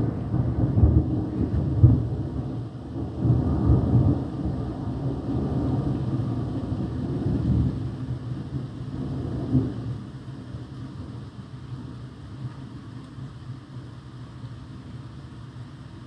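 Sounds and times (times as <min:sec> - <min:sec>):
thunder rumbling: 0:00.0 - 0:11.2.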